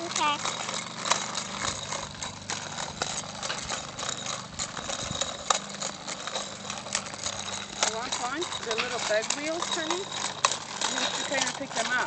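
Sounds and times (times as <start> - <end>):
bicycle wheels rattling on concrete: 0.0 - 12.0.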